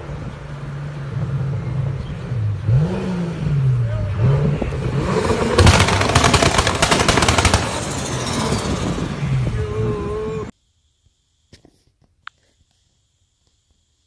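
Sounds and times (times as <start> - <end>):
car engine revving: 0.4 - 10.5
exhaust popping and crackling: 4.2 - 9.5.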